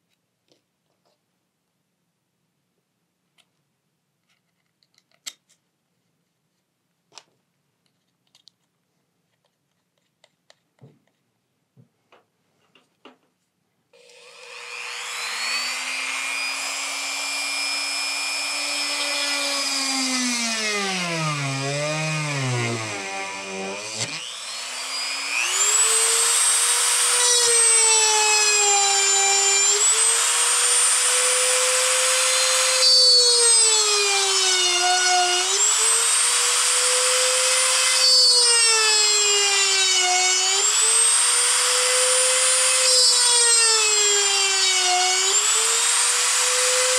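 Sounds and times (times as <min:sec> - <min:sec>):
rotary tool drilling whine: 0:14.0 - 0:46.9.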